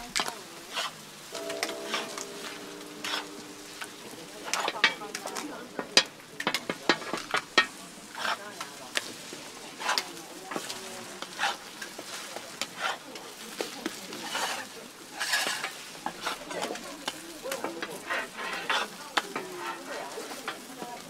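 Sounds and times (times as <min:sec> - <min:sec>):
food sizzling on a griddle: 0:00.0 - 0:21.0
metal tools scraping a griddle: 0:14.2 - 0:16.7, 0:17.9 - 0:20.8.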